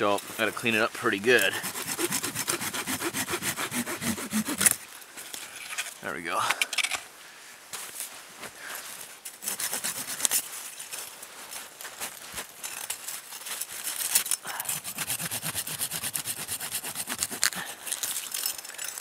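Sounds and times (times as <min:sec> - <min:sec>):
hand saw cutting branches: 0:00.2 - 0:04.9, 0:09.4 - 0:10.5, 0:13.8 - 0:19.0.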